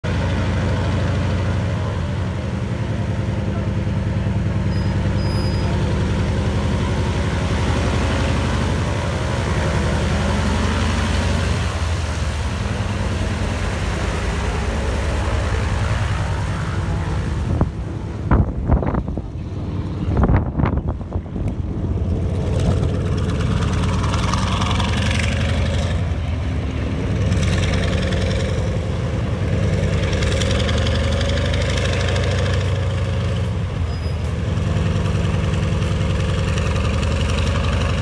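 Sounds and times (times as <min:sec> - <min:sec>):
aircraft engine running: 0:06.0 - 0:25.2
wind buffeting microphone: 0:17.2 - 0:23.4.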